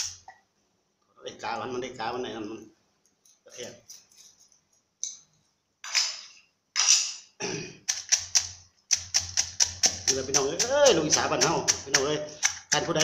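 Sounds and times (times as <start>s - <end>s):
pestle pounding in mortar: 9.1s - 13.0s.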